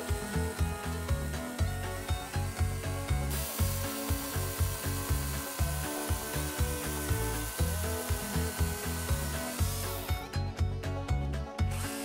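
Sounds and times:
music with beat and bass: 0.0s - 12.0s.

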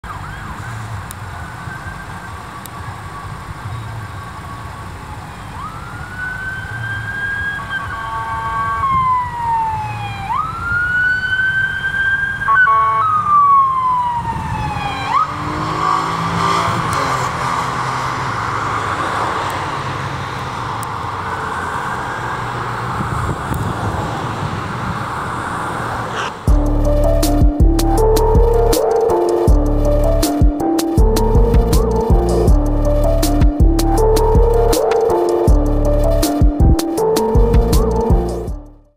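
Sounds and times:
police siren wailing: 0.0s - 17.1s, 26.5s - 38.9s
road traffic rumble: 0.0s - 38.9s.

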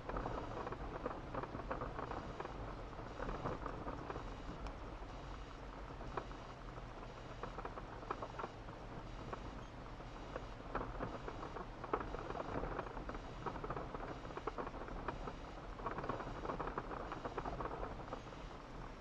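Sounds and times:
low steady hum: 0.0s - 19.0s
tyres crackling over gravel: 10.3s - 18.8s.

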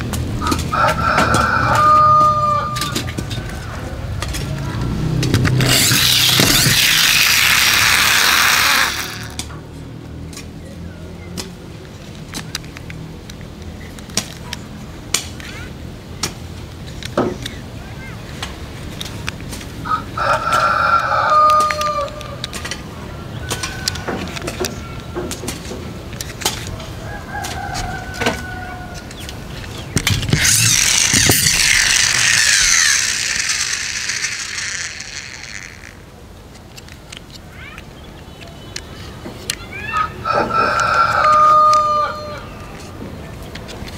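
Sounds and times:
plastic toy trucks clicking: 0.0s - 9.6s, 12.1s - 17.6s, 20.3s - 28.4s, 29.0s - 41.9s
toy truck gears whirring: 4.2s - 9.6s, 29.6s - 37.9s
light clicks of toy handled: 12.1s - 15.6s, 29.0s - 39.7s.

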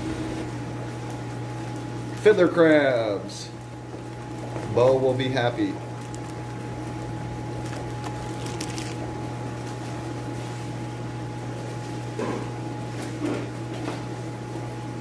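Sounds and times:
aquarium air pumps humming and bubbling: 0.0s - 15.0s
plastic bags crinkling: 3.4s - 10.0s.

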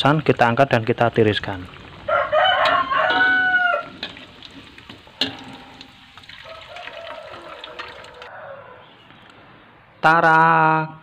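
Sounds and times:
hot oil sizzling in a wok: 0.0s - 8.3s
rooster crowing: 2.0s - 4.0s, 6.3s - 9.0s
metal strainer clink: 2.6s - 4.3s, 5.2s - 6.2s.

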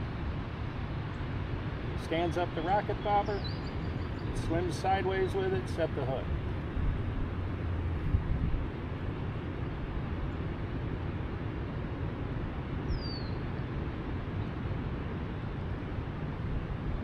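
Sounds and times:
wind through pine trees: 0.0s - 17.0s
bird whistle: 3.0s - 4.3s, 12.9s - 13.4s.

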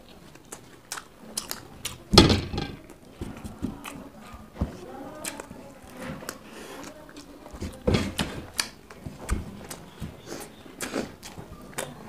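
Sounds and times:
chewing: 0.0s - 2.1s, 2.9s - 12.0s
loud knock: 2.1s - 2.8s.

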